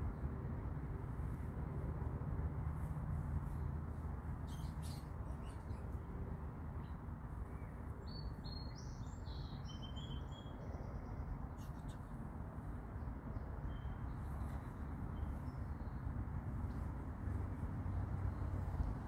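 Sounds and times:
small bird chirping: 4.4 - 6.0.

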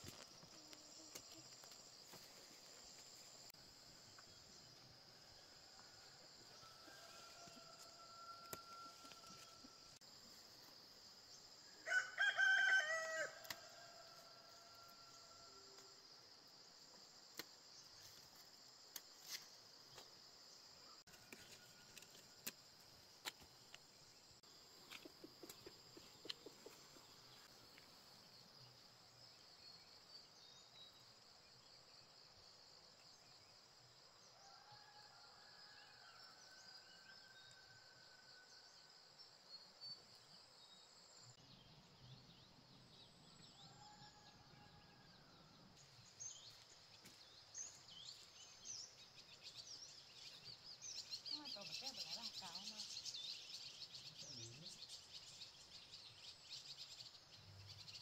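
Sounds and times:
rooster crowing: 6.0 - 9.8, 11.8 - 15.6.

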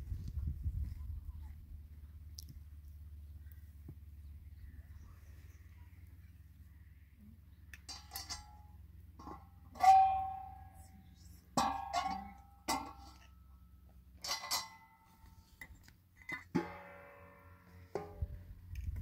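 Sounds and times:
metal griddle clanking: 7.9 - 10.7, 14.2 - 15.1, 16.3 - 18.4.

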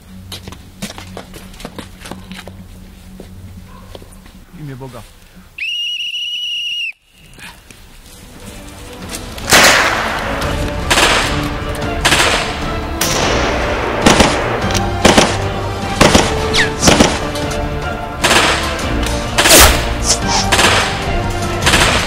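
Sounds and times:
shrill whistle blast: 5.6 - 7.2
film music: 7.7 - 22.0
loud gunshots: 9.5 - 11.4, 12.0 - 17.3, 18.2 - 22.0.

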